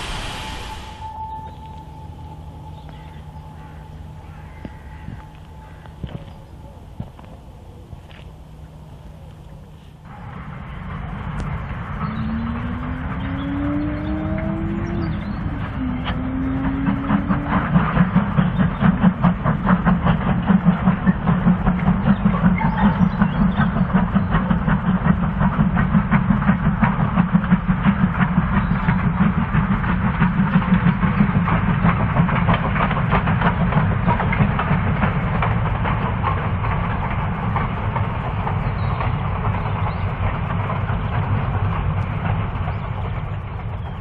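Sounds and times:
steam locomotive exhaust beating: 0.0 - 44.0.

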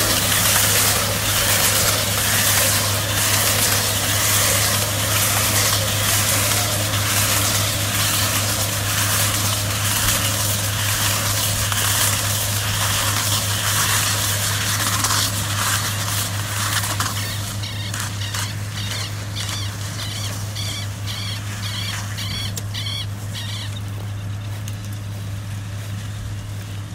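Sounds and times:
tractor humming: 0.0 - 26.9.

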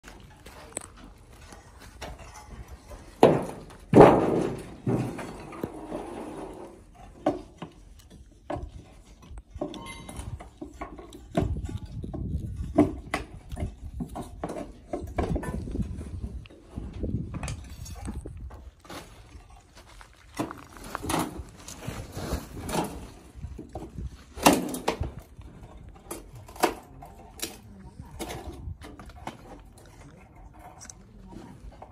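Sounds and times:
bricks knocking and scraping: 0.0 - 19.7.

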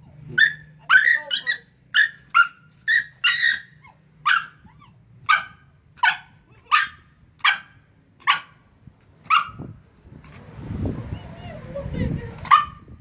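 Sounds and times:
dog barking angrily: 5.2 - 8.6, 12.5 - 12.8.

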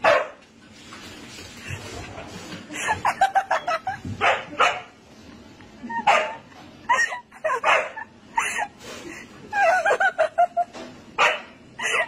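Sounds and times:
dog barking: 0.0 - 0.4, 4.2 - 4.9, 6.1 - 6.4, 7.6 - 8.0, 11.2 - 11.6.

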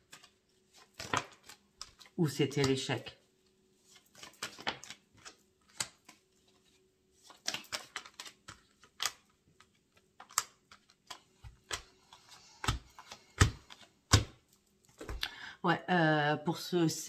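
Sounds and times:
cards tapping on a table: 12.6 - 14.4.

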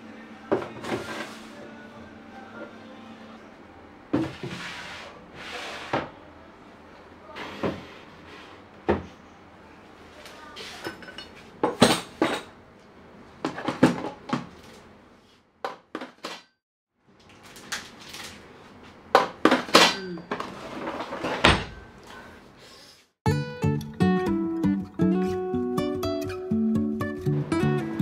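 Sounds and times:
objects knocking in drawer: 13.4 - 14.5.

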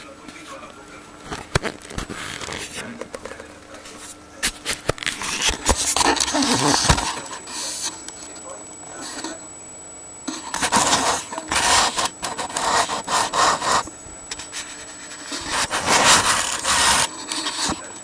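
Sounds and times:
rubbing and scraping: 10.3 - 17.8.

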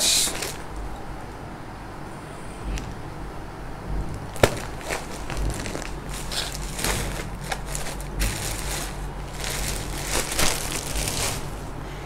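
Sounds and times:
plastic packets rustling: 0.0 - 1.0, 4.1 - 11.8.

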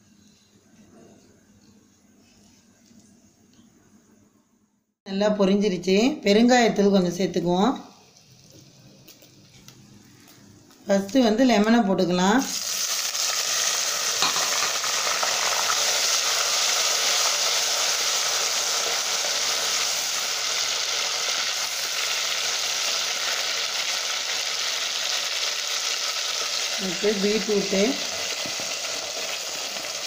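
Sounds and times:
lemon pieces sizzling in hot oil: 12.4 - 30.0.

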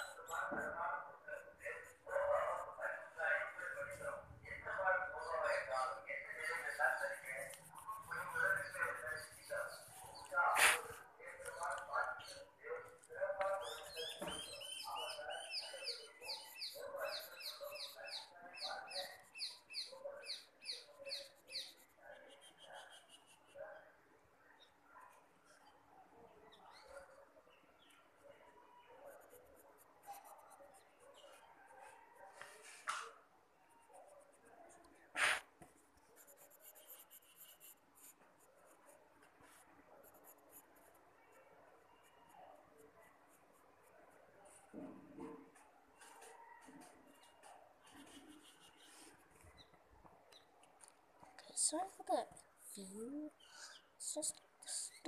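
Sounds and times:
pencil scratching on paper: 0.0 - 0.8, 1.4 - 23.6, 29.0 - 32.6, 33.8 - 44.8, 47.1 - 49.7
bird chirping: 4.0 - 23.4.

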